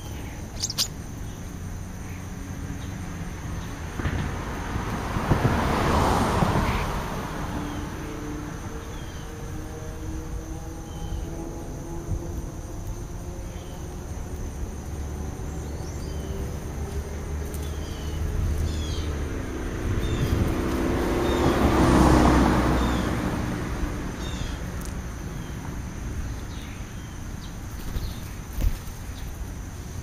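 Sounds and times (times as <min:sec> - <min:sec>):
high insect whine: 0:00.0 - 0:04.8, 0:05.6 - 0:30.0
vehicle passing by: 0:00.0 - 0:30.0
short high bird chirps: 0:00.5 - 0:01.0.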